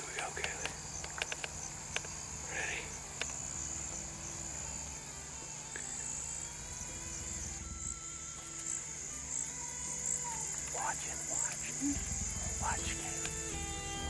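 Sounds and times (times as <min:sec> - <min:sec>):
faint clicks: 0:00.0 - 0:02.2, 0:03.0 - 0:04.0
crickets chirring: 0:00.0 - 0:14.0
low steady hum: 0:01.8 - 0:14.0.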